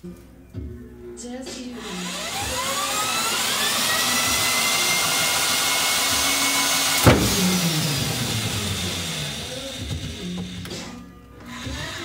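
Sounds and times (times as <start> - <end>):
electric drill whining: 1.5 - 12.0
sharp knock: 7.0 - 7.5.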